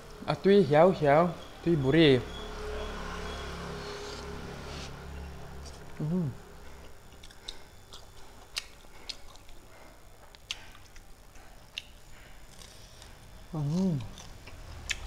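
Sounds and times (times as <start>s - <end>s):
person humming: 6.0s - 6.4s, 13.5s - 14.2s
person chewing: 6.8s - 15.0s.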